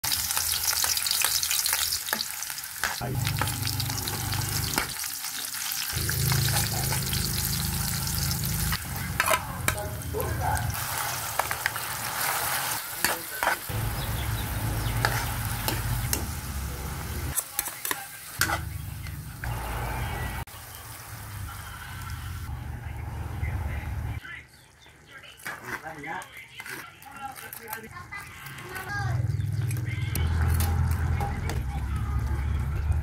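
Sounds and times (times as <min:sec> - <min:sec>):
vegetables sizzling in a wok: 0:00.0 - 0:24.1
metal spatula scraping a wok: 0:05.8 - 0:13.7, 0:14.8 - 0:16.4, 0:17.3 - 0:19.2, 0:25.4 - 0:29.0.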